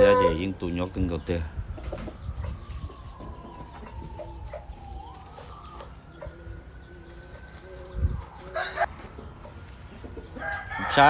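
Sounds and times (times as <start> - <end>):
young rooster crowing: 0.0 - 0.4, 8.2 - 8.9, 10.4 - 11.0
chickens clucking: 0.0 - 11.0
long drawn-out chicken call: 8.4 - 8.9, 10.3 - 11.0.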